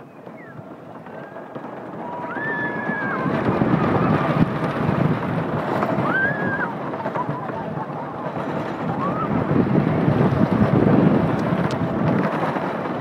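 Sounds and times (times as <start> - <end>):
roller coaster train rumbling: 0.0 - 13.0
wind buffeting microphone: 0.0 - 13.0
high held cry: 2.1 - 4.2.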